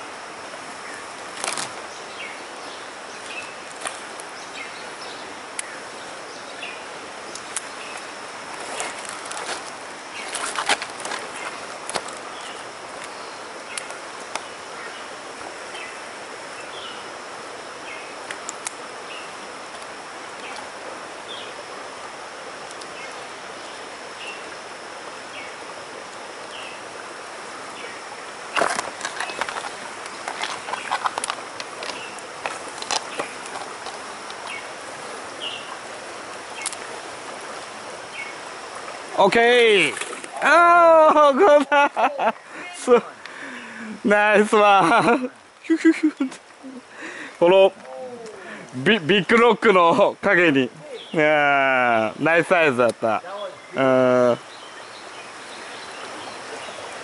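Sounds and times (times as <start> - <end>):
forest stream rushing: 0.0 - 57.0
clicks and splashes: 28.5 - 34.5, 39.6 - 40.5.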